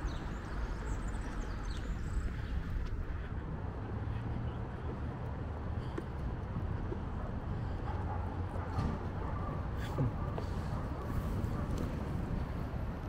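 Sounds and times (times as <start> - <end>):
low street rumble: 0.0 - 13.0.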